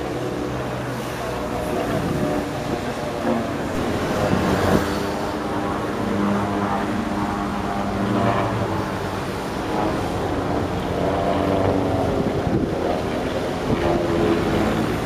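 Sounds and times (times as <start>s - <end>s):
aircraft engines droning overhead: 0.0s - 15.0s.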